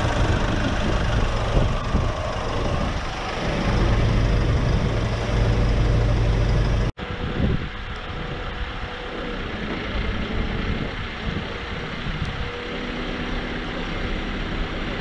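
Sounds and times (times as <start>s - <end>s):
diesel engine idling: 0.0s - 7.0s.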